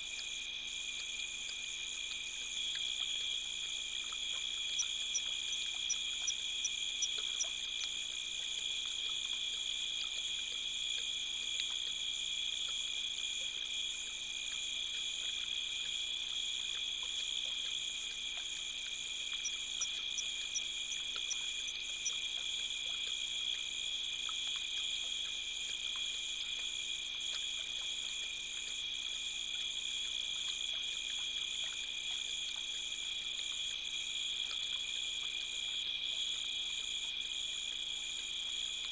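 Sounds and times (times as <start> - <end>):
night insects trilling: 0.0 - 38.9
rapid high ticks: 4.1 - 8.0, 19.3 - 22.2.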